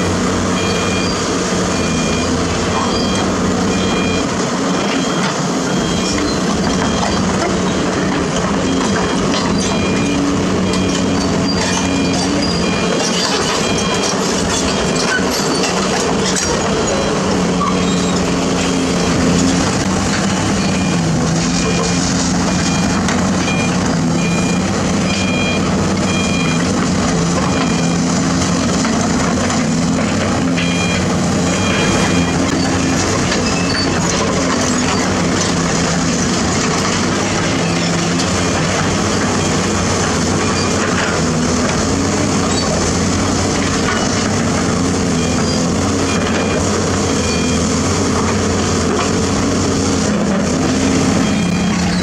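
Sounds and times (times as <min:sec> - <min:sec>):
excavator diesel engine under load: 0:00.0 - 0:52.0
short alarm beeps: 0:00.6 - 0:04.3, 0:20.6 - 0:26.7, 0:30.6 - 0:33.0, 0:50.9 - 0:52.0.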